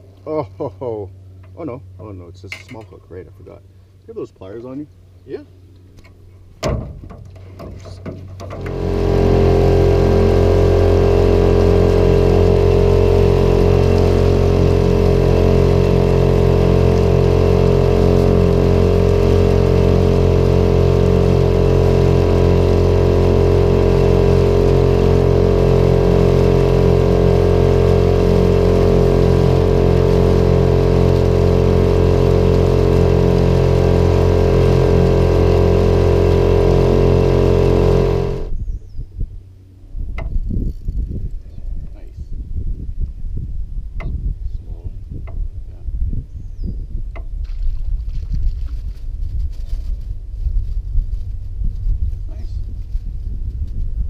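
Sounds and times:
small boat motor running: 0:00.0 - 0:42.0.

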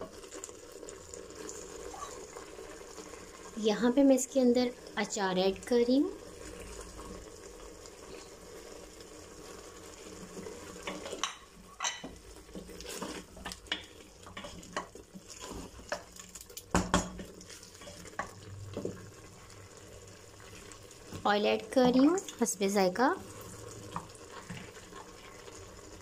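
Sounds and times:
food sizzling: 0:00.0 - 0:26.0
wooden spoon scraping a pot: 0:09.4 - 0:22.6, 0:23.2 - 0:26.0.

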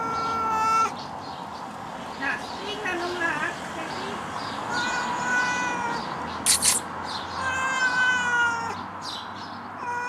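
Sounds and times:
cat meowing: 0:00.0 - 0:01.0, 0:04.7 - 0:06.8, 0:07.4 - 0:08.8, 0:09.8 - 0:10.0
brief noisy burst: 0:06.4 - 0:06.9.

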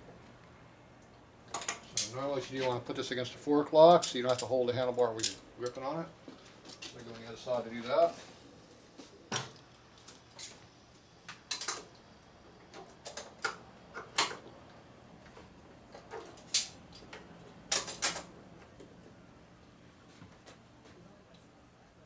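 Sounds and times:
hand tools clinking on metal: 0:05.2 - 0:05.8.

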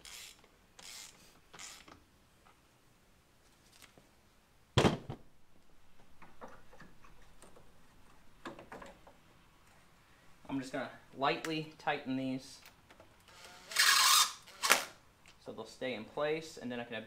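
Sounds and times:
ratchet scraping clicks: 0:00.0 - 0:02.0, 0:13.3 - 0:14.8.

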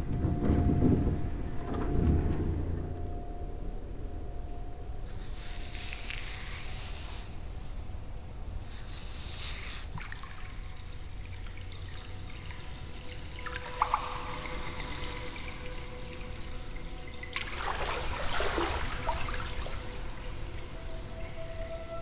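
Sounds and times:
faint steady tone: 0:00.0 - 0:22.0
water trickling and pouring: 0:05.0 - 0:07.4, 0:08.6 - 0:22.0.

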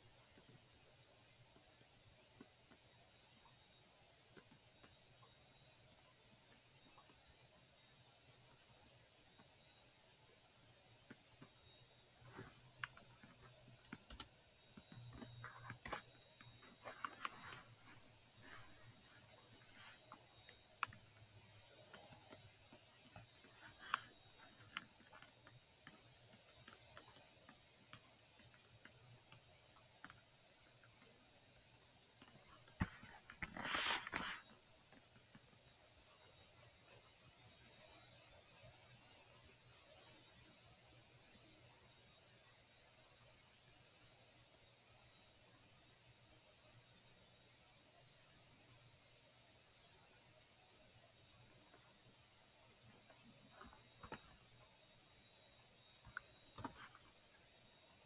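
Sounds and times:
mouse and keyboard clicks: 0:03.4 - 0:03.6, 0:05.9 - 0:07.2, 0:08.6 - 0:09.5, 0:11.1 - 0:21.0, 0:21.8 - 0:30.2, 0:31.7 - 0:35.6, 0:52.6 - 0:54.4, 0:55.5 - 0:57.2, 0:57.8 - 0:58.0.

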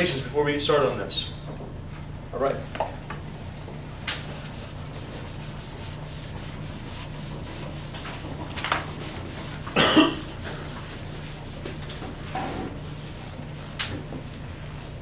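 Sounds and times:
eraser wiping a whiteboard: 0:03.4 - 0:15.0.

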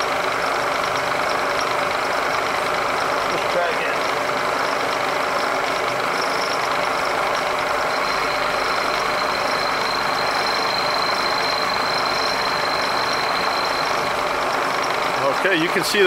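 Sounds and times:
high whine: 0:00.0 - 0:15.7
milling machine cutting metal: 0:00.0 - 0:16.0.

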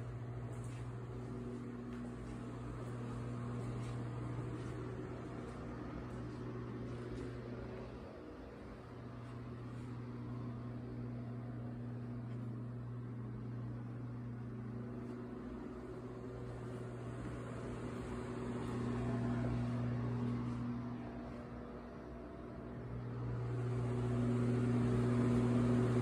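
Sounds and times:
low mechanical hum: 0:00.0 - 0:26.0.

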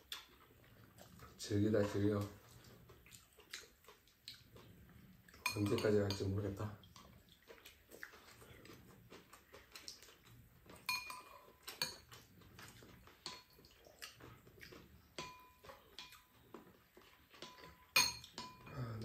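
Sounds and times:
spoons clinking on bowls: 0:05.4 - 0:06.5, 0:10.8 - 0:12.2, 0:13.2 - 0:13.6, 0:15.2 - 0:16.3, 0:17.3 - 0:19.0.

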